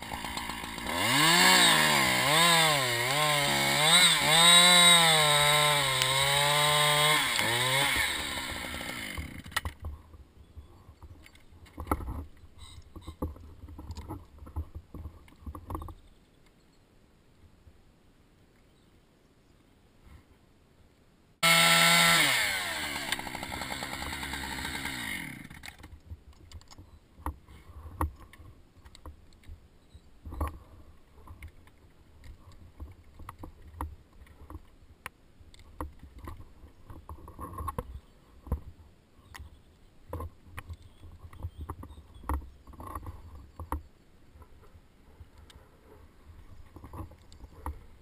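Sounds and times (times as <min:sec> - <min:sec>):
chainsaw revving: 0:00.0 - 0:09.6, 0:21.4 - 0:25.8.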